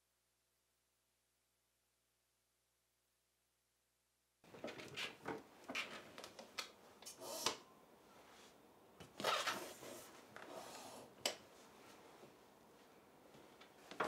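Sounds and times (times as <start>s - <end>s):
office chair rustling: 8.1s - 10.9s.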